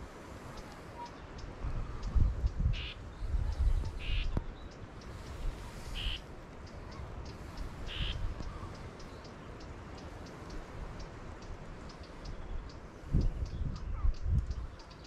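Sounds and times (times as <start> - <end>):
wind buffeting microphone: 0.0 - 15.0
bird harsh calls: 0.6 - 10.6.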